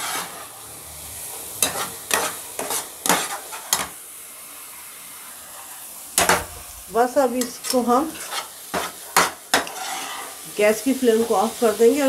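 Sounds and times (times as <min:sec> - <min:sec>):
metal spatula scraping pan: 0:00.0 - 0:00.6, 0:01.3 - 0:04.0, 0:06.2 - 0:10.4
low steady hiss: 0:03.9 - 0:08.2.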